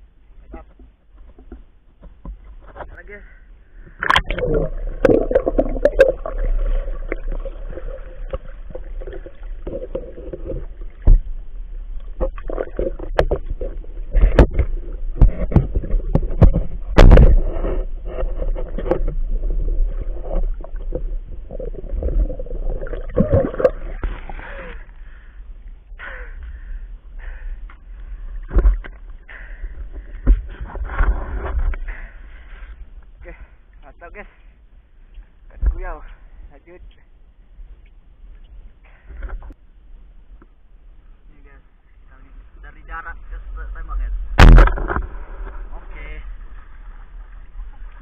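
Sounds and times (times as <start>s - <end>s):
sharp knocks and scrapes: 0.8s - 3.0s, 12.2s - 21.1s, 30.0s - 31.8s, 44.4s - 46.1s
water churning and gurgling: 3.4s - 34.6s, 42.2s - 48.0s.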